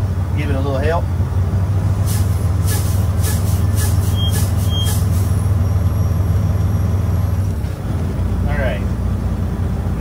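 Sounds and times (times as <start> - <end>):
truck diesel engine idling: 0.0 - 10.0
short air hisses: 2.0 - 5.3.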